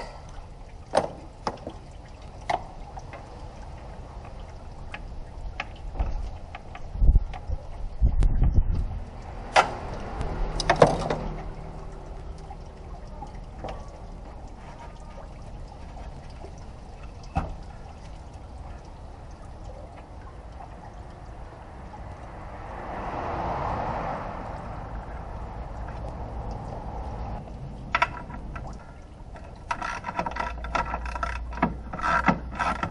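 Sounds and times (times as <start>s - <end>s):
rushing sound: 21.7s - 27.8s.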